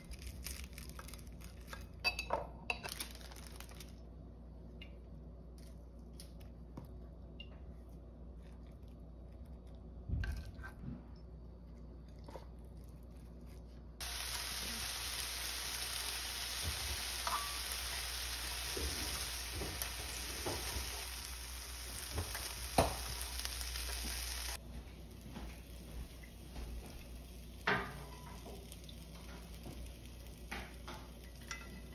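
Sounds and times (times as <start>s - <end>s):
ham sizzling in grill pan: 14.0s - 24.6s, 25.7s - 31.9s.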